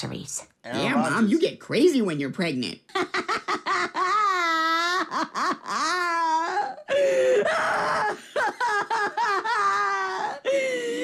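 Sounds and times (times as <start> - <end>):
woman wailing and sobbing: 2.9 - 11.0.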